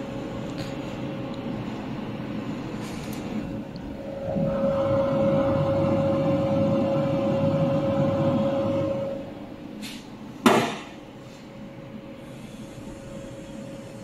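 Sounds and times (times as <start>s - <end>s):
laser welding machine hum: 0.0s - 14.0s.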